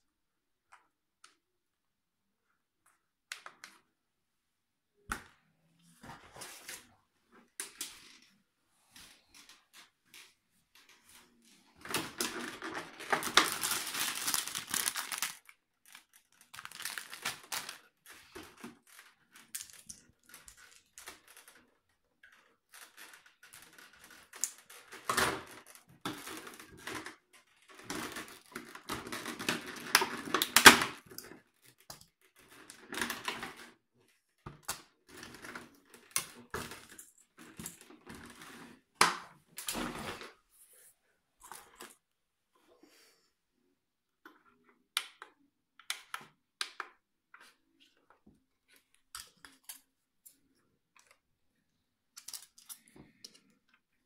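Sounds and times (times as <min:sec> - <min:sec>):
plastic bags rustling: 0:11.1 - 0:21.7.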